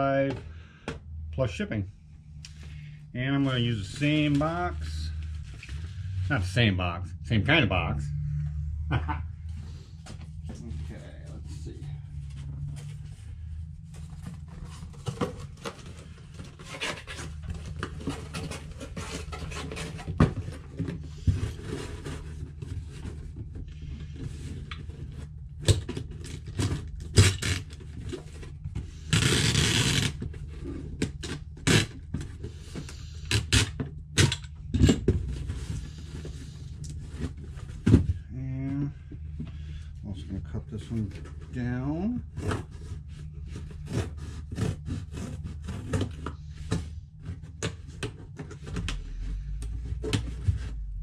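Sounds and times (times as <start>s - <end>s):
low hum: 0.0s - 51.0s
cardboard rubbing and scraping: 12.2s - 25.4s, 26.0s - 33.8s, 35.1s - 38.1s, 42.1s - 51.0s.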